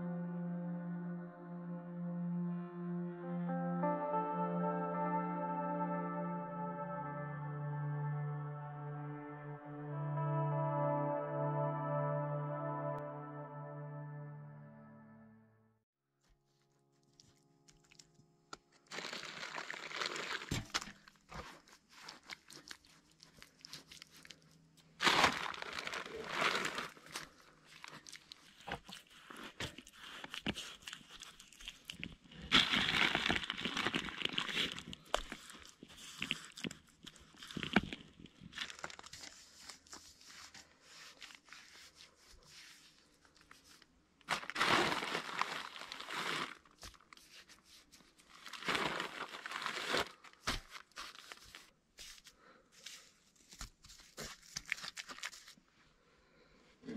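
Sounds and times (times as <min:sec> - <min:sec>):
crunching and rustling of dry material: 0:18.9 - 0:55.6.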